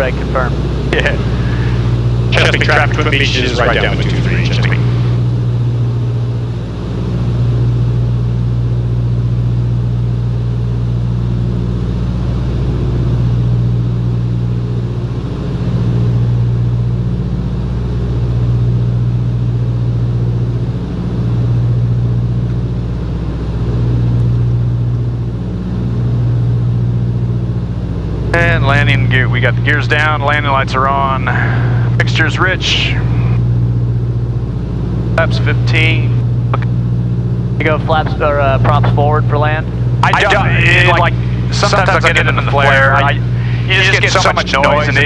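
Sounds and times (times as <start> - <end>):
propeller engines droning: 0.0 - 45.0.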